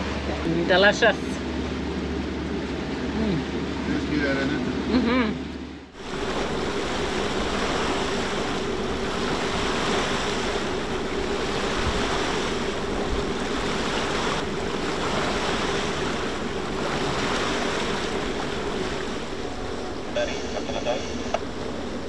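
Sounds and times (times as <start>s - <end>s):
constant low drone: 0.0s - 22.0s
water rushing along a hull: 0.0s - 22.0s.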